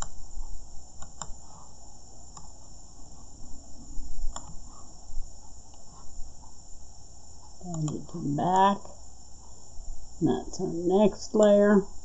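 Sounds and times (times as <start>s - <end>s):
high-pitched background whine: 0.0s - 12.0s
computer mouse clicks: 1.0s - 1.7s, 2.3s - 2.7s, 4.3s - 4.8s, 7.4s - 8.1s.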